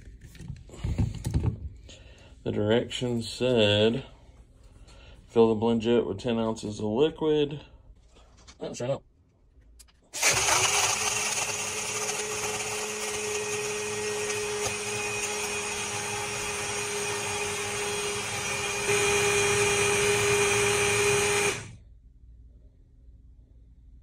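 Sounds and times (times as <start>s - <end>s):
blender whirring: 10.2s - 21.8s.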